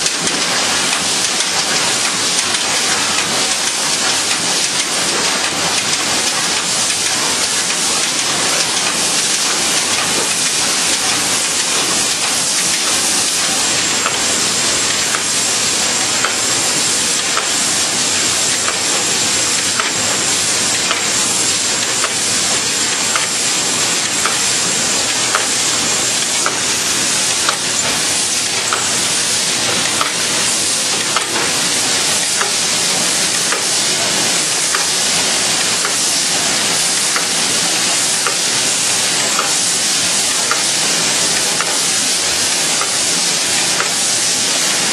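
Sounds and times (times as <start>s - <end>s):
shrink-wrapping machine hissing: 0.0s - 44.9s
faint machine ticks: 23.1s - 23.4s, 41.4s - 41.8s.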